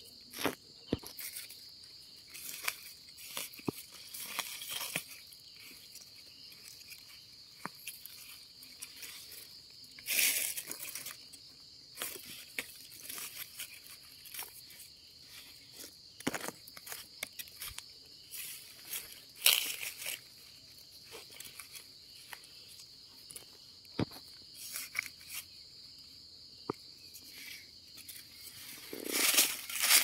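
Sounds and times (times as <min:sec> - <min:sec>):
high insect drone: 0:00.0 - 0:30.0
leaves and twigs rustling and crackling: 0:00.0 - 0:30.0.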